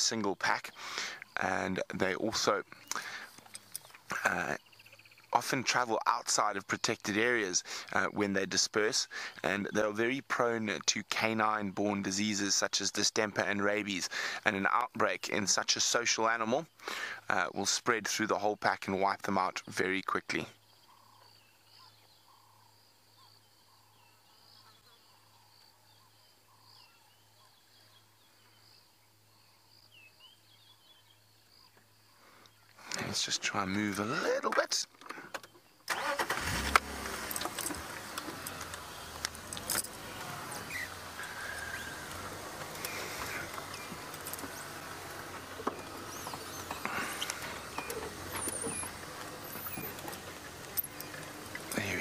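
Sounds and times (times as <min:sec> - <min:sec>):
distant bird calls: 0:00.0 - 0:52.0
small clicks and rustles: 0:03.3 - 0:04.1, 0:36.6 - 0:52.0.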